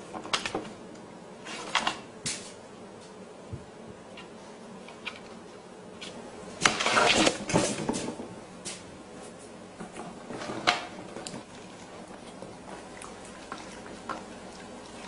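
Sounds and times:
cabbage scraping on wooden table: 0:06.0 - 0:08.0, 0:10.2 - 0:11.3.

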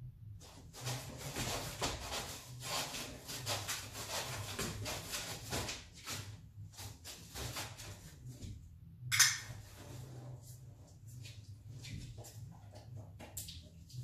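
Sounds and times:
rapid scratching and rustling: 0:00.4 - 0:08.5.

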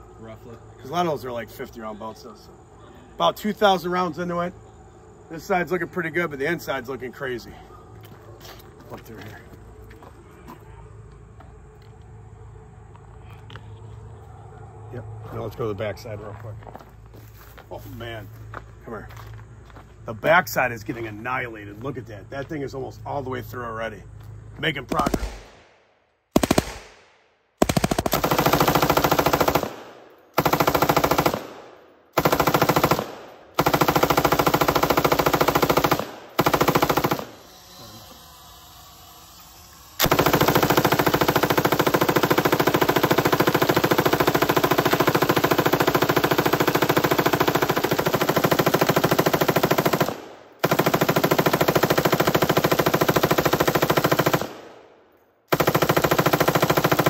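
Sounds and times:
machine gun firing bursts: 0:24.9 - 0:25.6, 0:26.3 - 0:27.0, 0:27.6 - 0:37.4, 0:40.0 - 0:54.8, 0:55.5 - 0:57.0.

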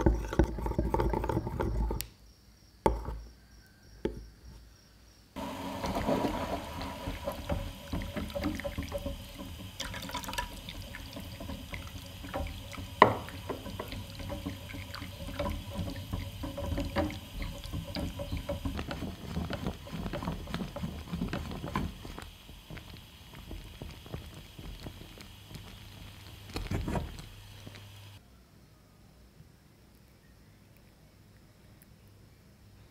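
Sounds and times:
hot chocolate bubbling: 0:00.0 - 0:02.1, 0:05.4 - 0:28.2.

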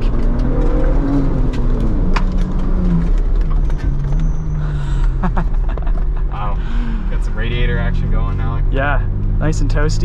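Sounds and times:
rumble of tyres on gravel: 0:00.0 - 0:06.2
engine pulling steadily: 0:00.0 - 0:10.0.

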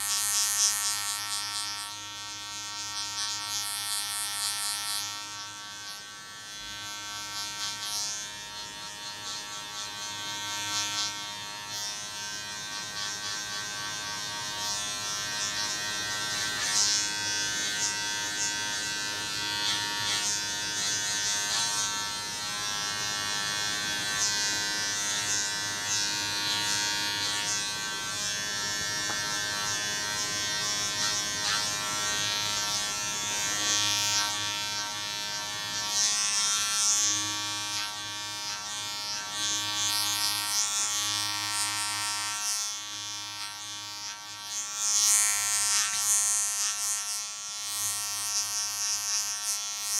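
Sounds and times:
electric hair clippers running: 0:00.0 - 0:49.9
hiss of clippers cutting hair: 0:00.0 - 0:49.9.

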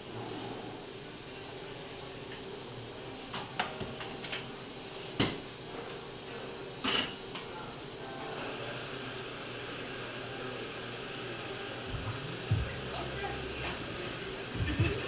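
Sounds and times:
steady low hum: 0:11.2 - 0:15.0.

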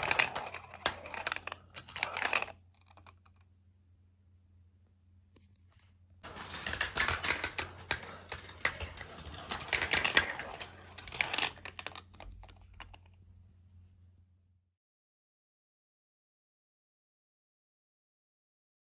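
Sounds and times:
steel marbles clattering on track: 0:00.0 - 0:03.2, 0:06.2 - 0:13.0.

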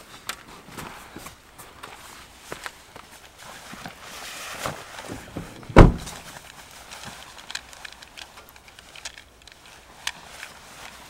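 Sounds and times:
light rustling: 0:00.1 - 0:11.0
car door thumping shut: 0:05.4 - 0:06.2.

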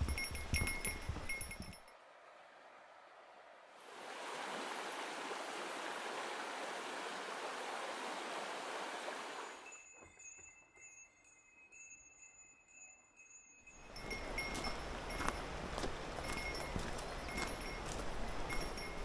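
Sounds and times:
small pulsing bell-like ringing: 0:00.0 - 0:02.0, 0:09.6 - 0:15.6, 0:16.2 - 0:19.0
rushing stream water: 0:00.0 - 0:09.7, 0:13.8 - 0:19.0.

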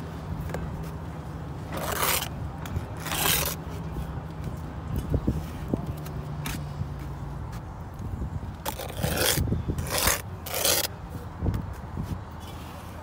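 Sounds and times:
trowel scraping mortar: 0:01.7 - 0:03.6, 0:08.6 - 0:10.9.

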